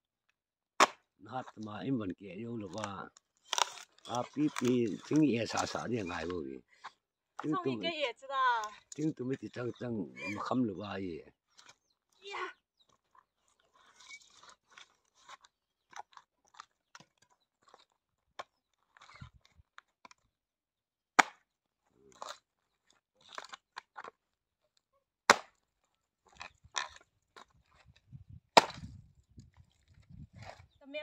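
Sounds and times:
axe chopping wood: 0.8s - 1.1s, 21.2s - 21.4s, 25.3s - 25.6s, 28.6s - 29.0s
wood cracking and crackling: 2.4s - 7.8s, 11.5s - 20.3s, 22.0s - 24.2s.

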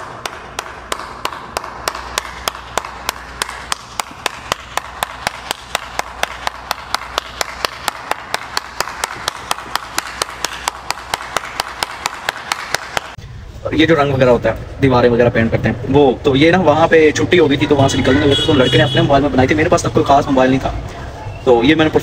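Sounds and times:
person clapping hands: 0.0s - 13.2s.

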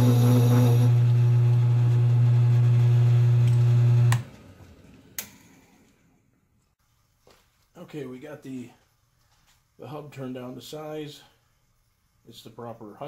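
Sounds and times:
spindle winding down: 0.0s - 1.6s
lathe motor humming: 0.0s - 4.2s.

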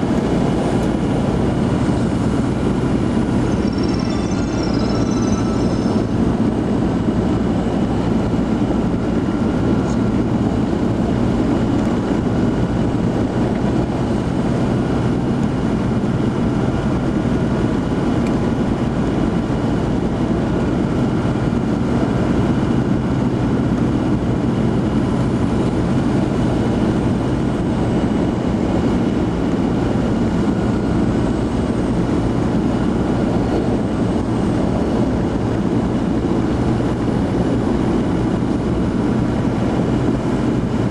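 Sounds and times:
vehicle engine and road noise: 0.0s - 40.9s.

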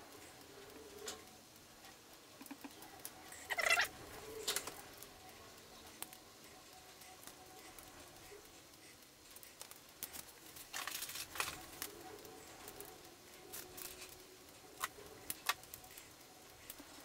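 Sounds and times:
rustling of wires: 0.0s - 17.0s.

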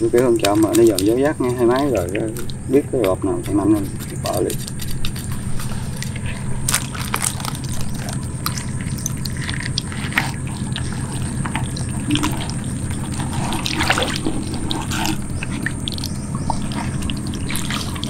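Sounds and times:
steady low hum: 0.0s - 18.0s
water splashing and dripping: 8.4s - 18.0s.

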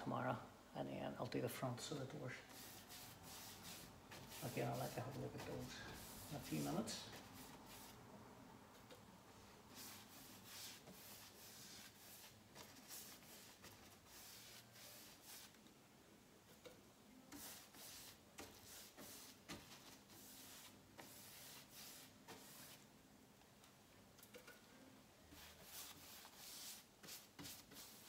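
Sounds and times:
paintbrush swishing on wood: 2.4s - 8.0s, 9.7s - 15.6s, 17.4s - 22.8s, 25.3s - 28.0s.

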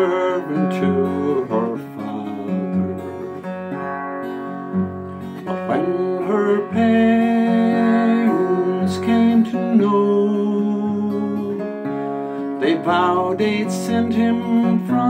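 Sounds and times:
man singing a ballad: 0.0s - 3.5s, 5.5s - 11.8s, 12.4s - 15.0s
acoustic guitar: 0.0s - 15.0s.

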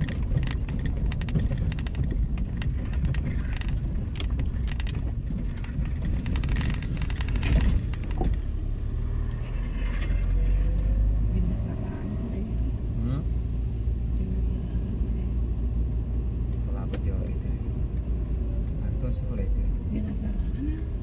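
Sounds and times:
rattling clicks: 0.0s - 8.7s
vehicle engine rumble: 0.0s - 21.0s.

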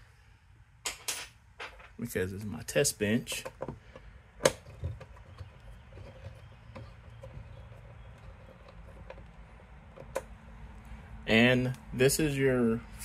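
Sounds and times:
low steady hum: 0.0s - 13.0s
wires clicking and rustling: 3.2s - 11.0s.

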